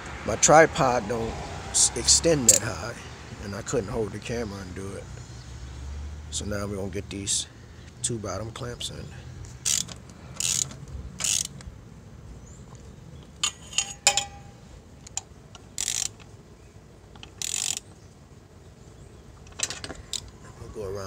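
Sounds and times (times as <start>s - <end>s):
hand ratchet clicking: 9.6s - 11.6s, 15.1s - 16.3s, 17.2s - 17.8s.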